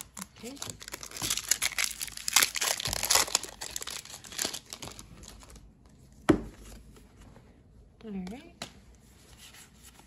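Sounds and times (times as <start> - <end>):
foil wrapper crinkling: 0.0 - 5.6.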